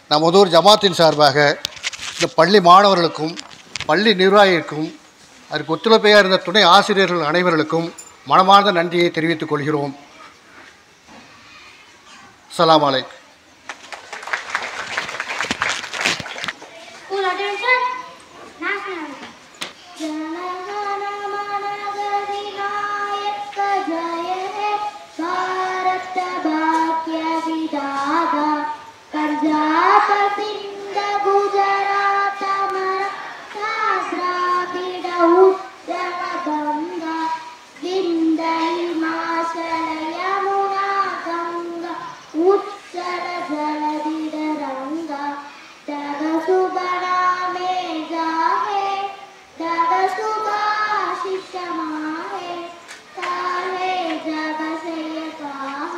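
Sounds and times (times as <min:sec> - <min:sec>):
girl singing into microphone: 0:17.0 - 0:55.9.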